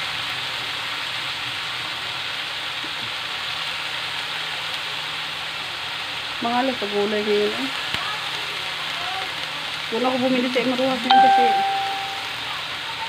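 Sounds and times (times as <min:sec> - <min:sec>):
vegetables sizzling in a wok: 0:00.0 - 0:13.0.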